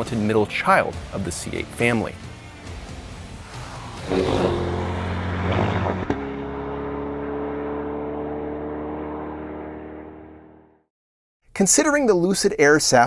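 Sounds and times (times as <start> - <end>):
car engine running hard: 1.4 - 10.8.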